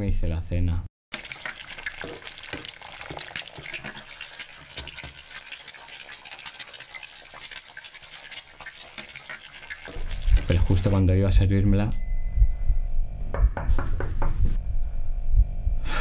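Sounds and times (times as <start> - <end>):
eggs sizzling in frying pan: 1.1 - 11.0.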